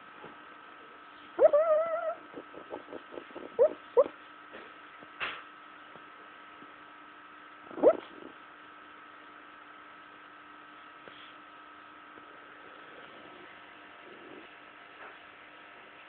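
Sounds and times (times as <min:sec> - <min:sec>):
electrical hum: 0:00.0 - 0:16.0
dog whimpering: 0:01.4 - 0:04.2, 0:07.7 - 0:08.3.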